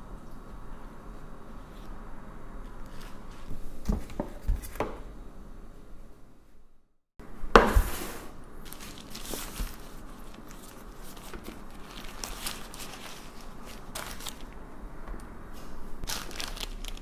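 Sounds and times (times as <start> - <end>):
paper crinkling and rustling: 8.6 - 14.6, 16.0 - 17.0.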